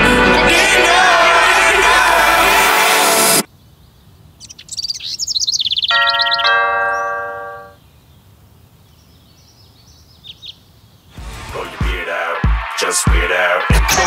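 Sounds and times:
birds chirping: 3.5 - 11.4
two-note doorbell chime: 6.1 - 7.8.

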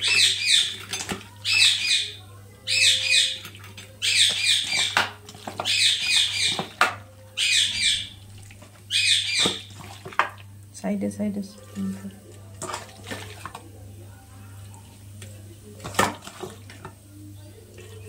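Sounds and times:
bird squawking calls: 0.0 - 0.8, 1.4 - 3.4, 4.0 - 6.7, 7.4 - 8.2, 8.9 - 9.8.

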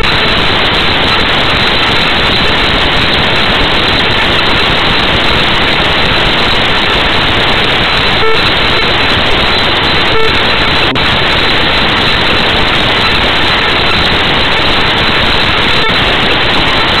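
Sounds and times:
loud static hiss: 0.0 - 17.0
short beeps: 8.2 - 8.6, 10.0 - 11.1.

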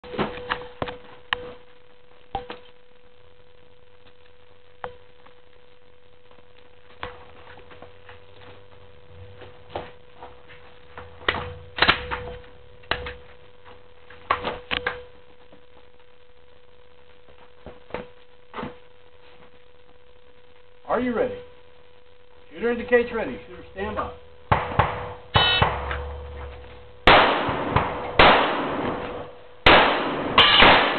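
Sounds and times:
faint steady hum: 0.0 - 30.9
pistol gunshots: 24.5 - 26.3, 27.0 - 30.9.

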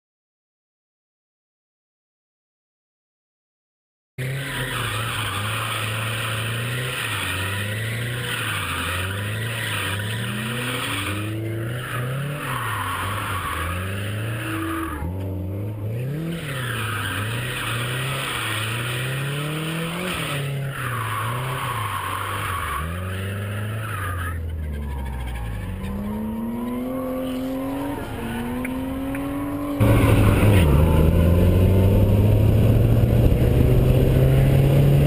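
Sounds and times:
tyres squealing: 4.2 - 15.2, 15.9 - 30.8
car engine revving: 4.2 - 35.0.

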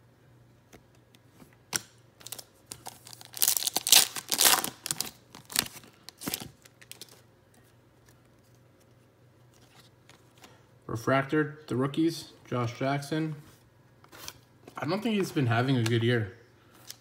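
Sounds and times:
foil wrapper tearing and crinkling: 2.2 - 7.2.

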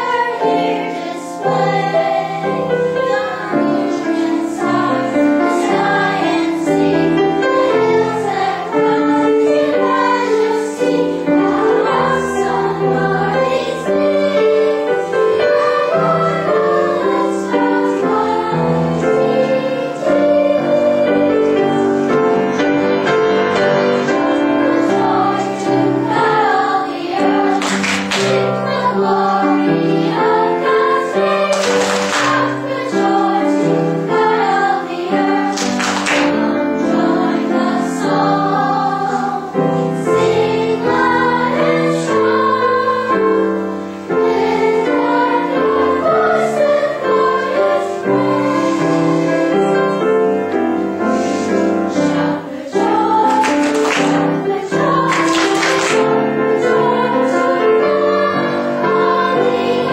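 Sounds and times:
children's choir singing: 0.0 - 59.9
piano accompaniment: 0.0 - 59.9.

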